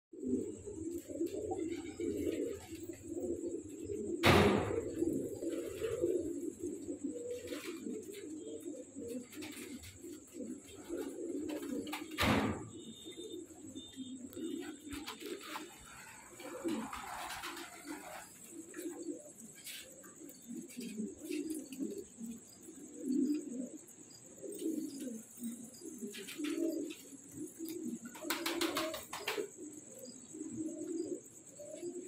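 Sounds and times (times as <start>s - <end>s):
pigeons cooing: 0.1s - 32.0s
loud sharp thumps: 4.2s - 5.0s.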